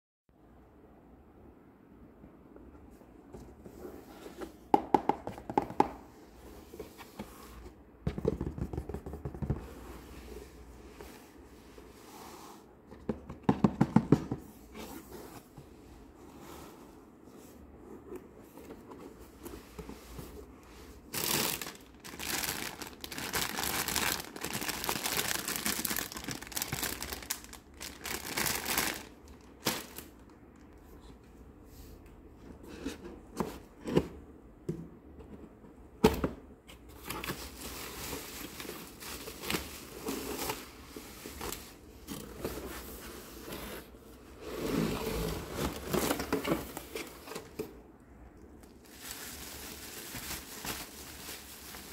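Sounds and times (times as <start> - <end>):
plastic packaging crinkling: 21.0 - 30.3, 48.6 - 51.9.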